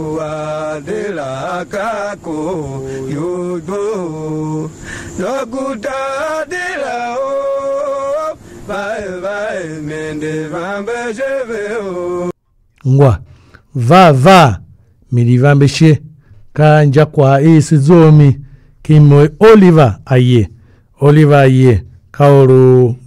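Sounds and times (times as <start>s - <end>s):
solo voice chanting: 0.0s - 14.3s.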